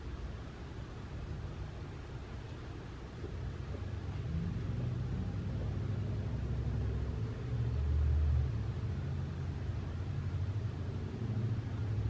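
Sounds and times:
passing motor vehicle rumble: 2.8s - 12.0s.

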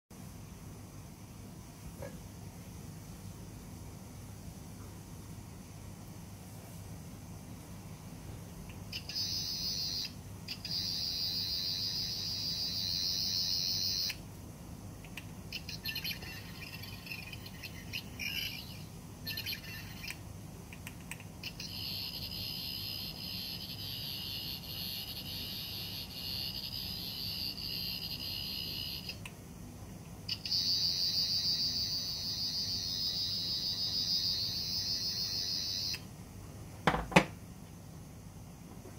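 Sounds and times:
high-pitched electronic buzzing: 8.9s - 14.2s, 15.5s - 20.2s, 21.4s - 29.2s, 30.3s - 36.0s.

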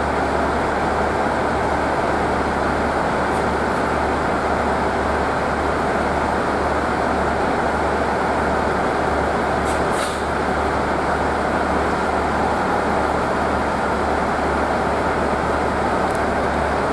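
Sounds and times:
train wheels rumbling on rail: 0.0s - 16.9s
brief high hisses: 9.7s - 10.3s.

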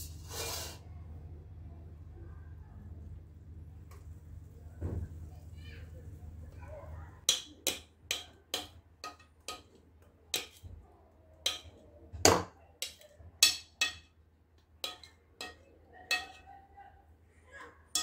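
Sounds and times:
whisk clinking on glass bowl: 12.8s - 14.1s, 14.8s - 16.4s.

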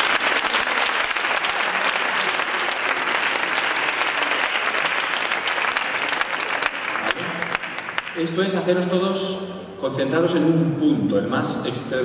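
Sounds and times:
crowd clapping: 0.0s - 8.7s.

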